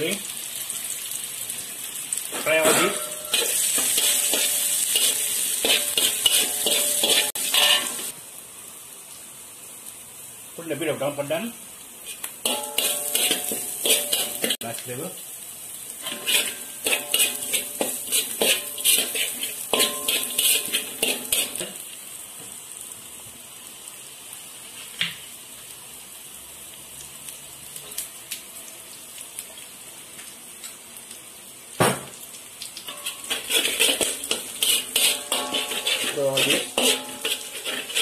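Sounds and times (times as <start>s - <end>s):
food sizzling in oil: 0.0s - 38.0s
metal spatula clanking on wok: 2.4s - 8.1s, 12.4s - 14.6s, 16.0s - 21.8s, 32.9s - 38.0s.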